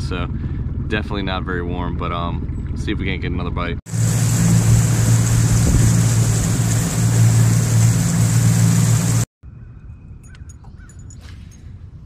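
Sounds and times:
outboard motor running: 0:03.9 - 0:09.3
water wash: 0:03.9 - 0:09.3.

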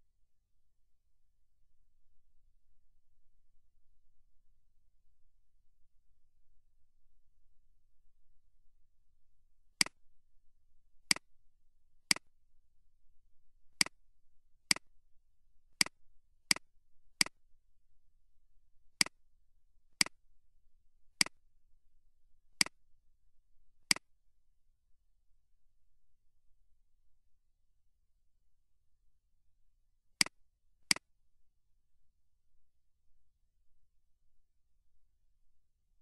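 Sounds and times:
computer mouse clicking: 0:14.7 - 0:14.9, 0:21.2 - 0:21.4.

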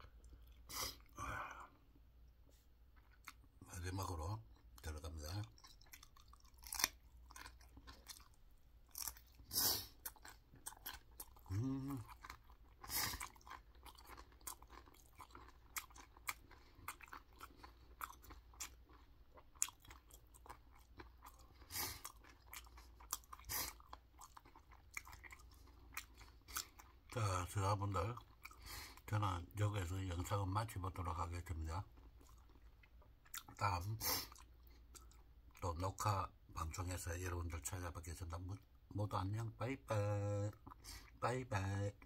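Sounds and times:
crunchy chewing: 0:05.3 - 0:27.2
hum-like vocal sound: 0:11.5 - 0:12.1.

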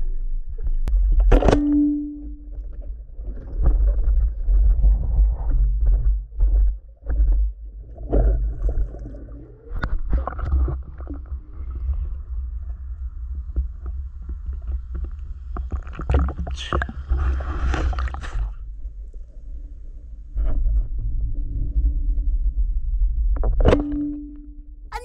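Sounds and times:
water sloshing and splashing: 0:00.0 - 0:12.1, 0:14.2 - 0:18.6
low rumble of water on housing: 0:00.0 - 0:24.9.

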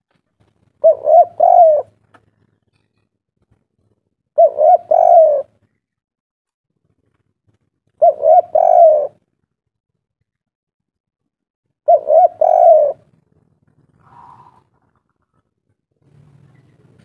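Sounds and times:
dove cooing: 0:00.7 - 0:02.5, 0:04.4 - 0:05.7, 0:08.0 - 0:09.2, 0:11.8 - 0:15.5.

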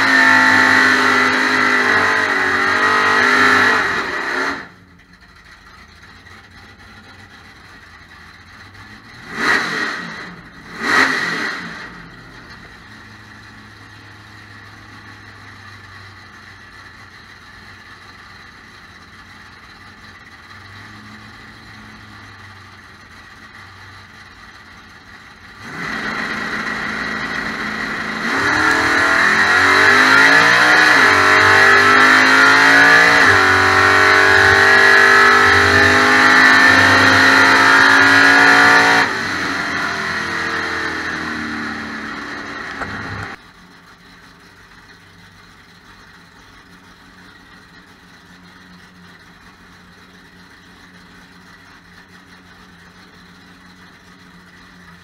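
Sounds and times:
race car engine revving: 0:00.0 - 0:04.9, 0:08.5 - 0:15.5, 0:19.2 - 0:43.4.

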